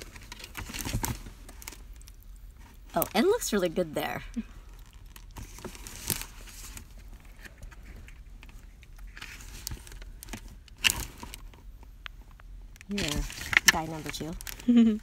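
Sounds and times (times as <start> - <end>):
paper pages turning: 12.9 - 14.6.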